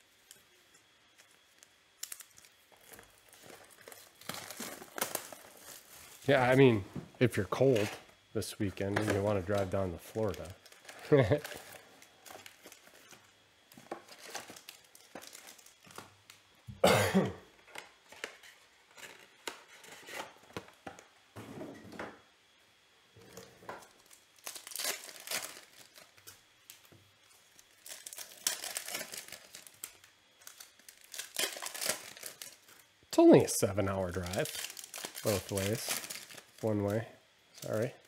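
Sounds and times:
foil tearing: 0.0 - 16.4, 17.8 - 20.7, 23.8 - 37.9
foil packs crinkling: 0.0 - 16.5, 17.6 - 21.1, 23.3 - 38.0
person coughing: 16.8 - 17.5.

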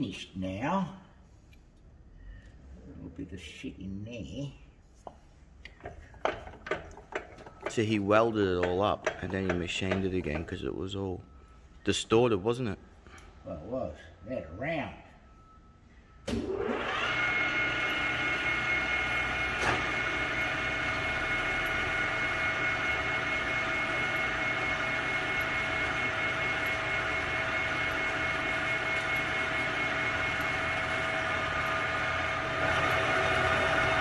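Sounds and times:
lathe motor whining: 5.8 - 11.7, 16.3 - 34.0.

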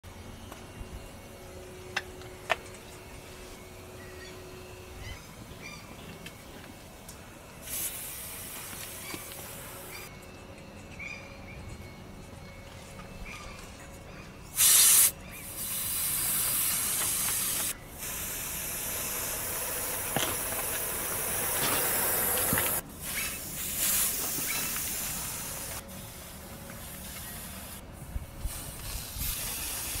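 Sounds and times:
air hissing from tyre valve: 7.6 - 10.1, 14.6 - 27.8, 28.4 - 30.0.

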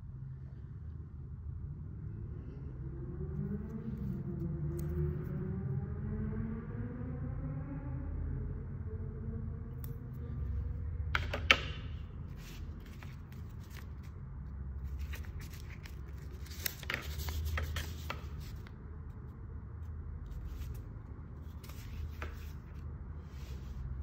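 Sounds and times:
low steady hum: 0.0 - 24.0
paper crackling and rustling: 12.3 - 14.2, 14.8 - 18.7, 20.3 - 23.9.

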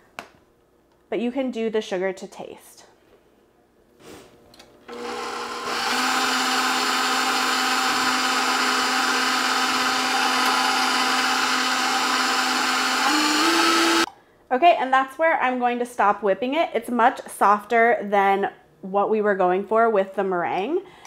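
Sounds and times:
stand mixer motor whine: 4.9 - 14.1.

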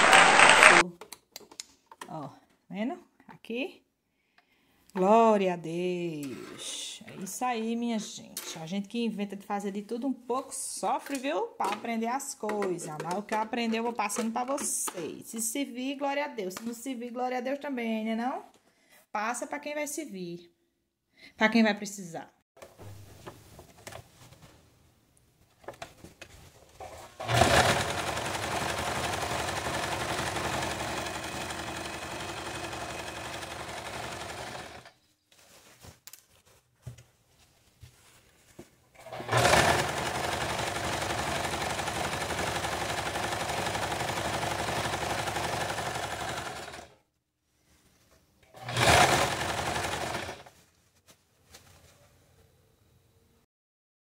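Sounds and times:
sewing machine stitching: 0.0 - 0.8, 26.8 - 34.9, 39.0 - 47.0, 48.5 - 50.5.

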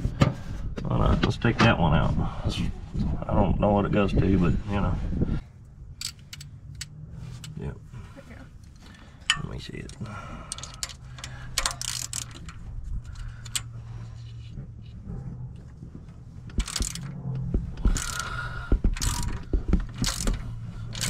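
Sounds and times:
low steady hum: 0.0 - 21.0
metal tools clinking: 6.0 - 7.6, 8.6 - 13.7, 16.5 - 17.2, 19.0 - 21.0
socket ratchet clicking: 6.0 - 7.6, 9.3 - 13.7, 16.5 - 17.2, 17.8 - 18.4, 19.0 - 21.0.

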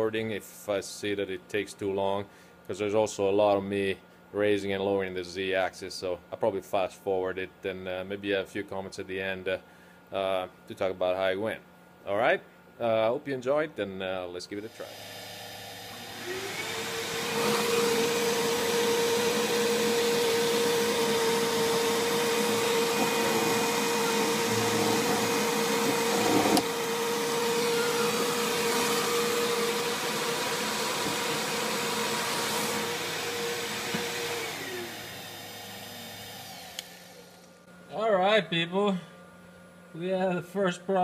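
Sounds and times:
vacuum running: 14.6 - 39.0
cnc mill machining: 14.7 - 36.9.

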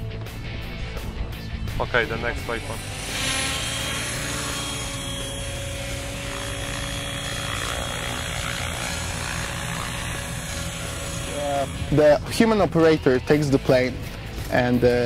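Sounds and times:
model helicopter rotors: 1.9 - 13.7.

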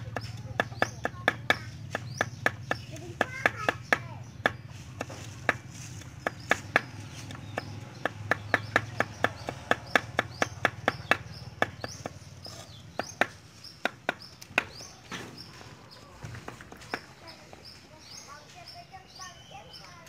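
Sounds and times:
knife chopping on wooden board: 0.0 - 14.9.

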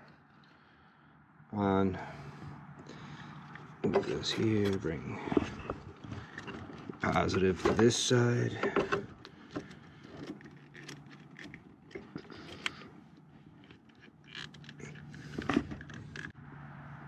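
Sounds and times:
light metal clicks and scrapes: 3.0 - 16.4.

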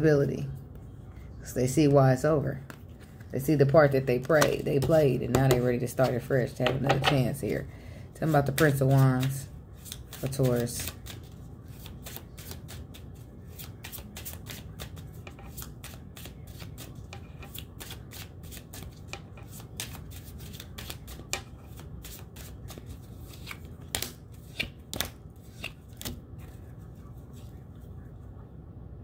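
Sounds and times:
cards shuffling: 8.2 - 27.6.

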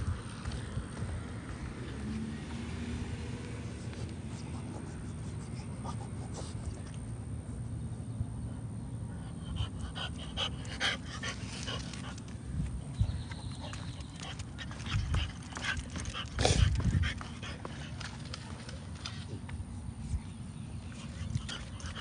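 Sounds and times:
dog sniffing and snuffling: 3.6 - 7.1, 9.3 - 12.4, 13.5 - 22.0.

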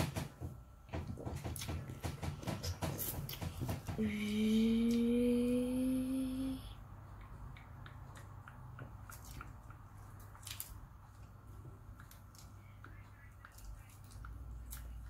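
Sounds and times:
woman humming: 4.0 - 6.8.

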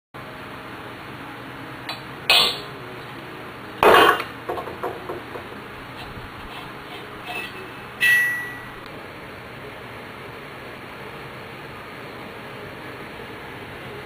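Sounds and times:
metal clanks on propane tank: 2.3 - 2.7, 3.8 - 5.5.

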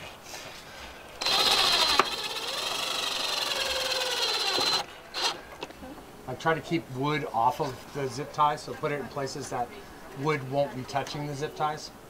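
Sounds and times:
cordless drill motor whine: 1.2 - 5.4.

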